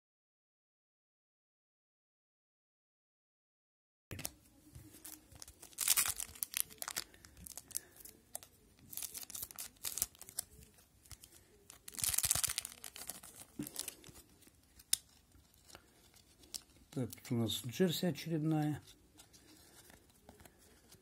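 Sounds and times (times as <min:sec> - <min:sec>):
cards and wrapper crackling: 0:04.1 - 0:17.4
foil wrapper tearing: 0:05.0 - 0:17.2.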